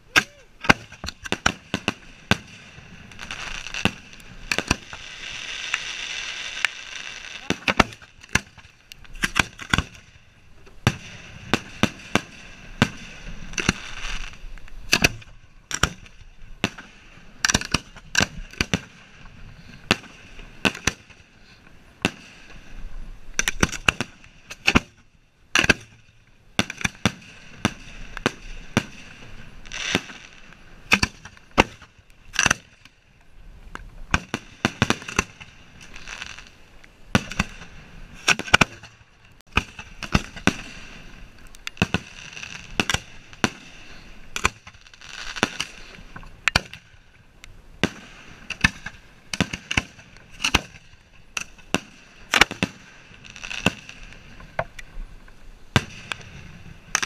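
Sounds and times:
fireworks hiss: 0.0 - 10.2, 10.8 - 15.4, 26.6 - 32.4, 34.3 - 38.8, 39.4 - 46.9
fireworks bursting with sharp bangs: 0.0 - 33.2, 34.0 - 54.8, 55.7 - 57.0.

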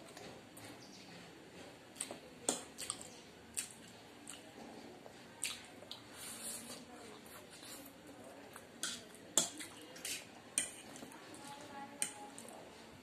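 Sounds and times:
wet chewing: 1.9 - 7.9.

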